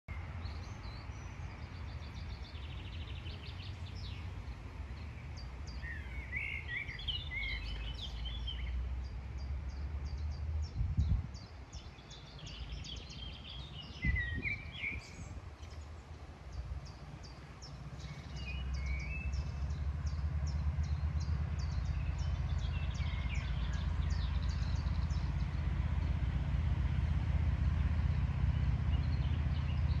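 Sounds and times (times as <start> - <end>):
songbirds singing: 0.1 - 30.0
wind rumbling on microphone: 0.1 - 30.0.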